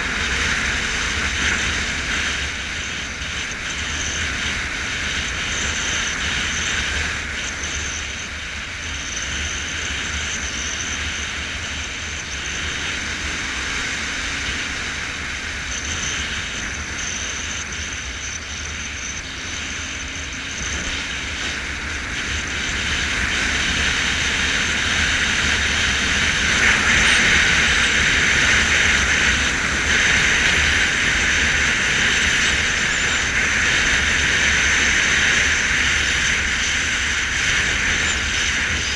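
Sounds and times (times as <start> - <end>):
motorcycle engine drone: 0.0 - 38.9.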